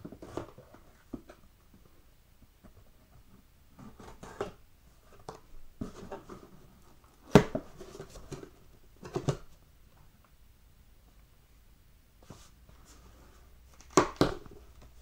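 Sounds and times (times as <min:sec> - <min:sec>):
cardboard rustling and scraping: 0:03.7 - 0:09.5.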